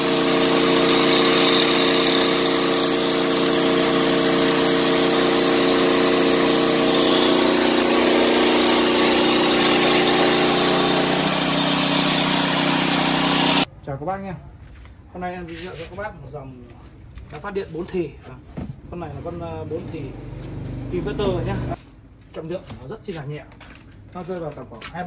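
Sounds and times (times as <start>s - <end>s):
angle grinder spinning free: 0.0s - 13.7s
generator running: 0.0s - 13.7s, 20.0s - 21.8s.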